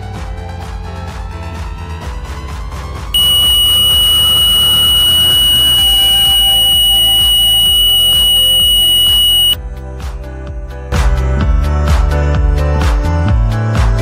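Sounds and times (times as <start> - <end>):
metal detector high-pitched tone: 3.2 - 9.6.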